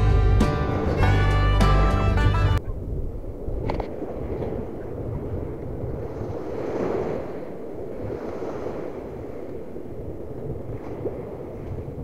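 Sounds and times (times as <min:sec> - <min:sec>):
wind rumbling on microphone: 0:02.2 - 0:12.0
small waves washing ashore: 0:03.2 - 0:12.0.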